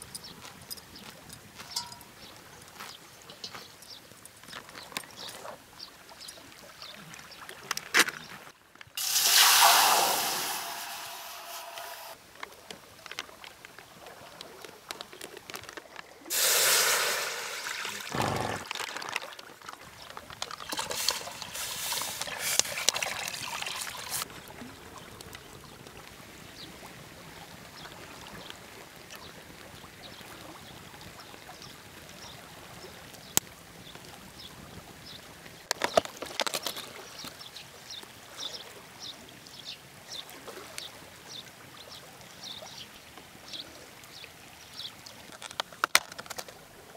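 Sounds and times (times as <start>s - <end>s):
soup pouring and splashing: 9.0s - 12.2s, 15.6s - 24.3s
steady hiss: 9.0s - 12.2s, 16.3s - 18.6s.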